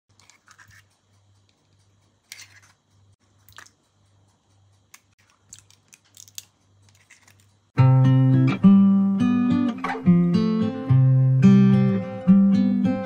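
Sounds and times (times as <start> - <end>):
kitchen scrapes and clicks: 0.1 - 0.9, 2.3 - 2.8.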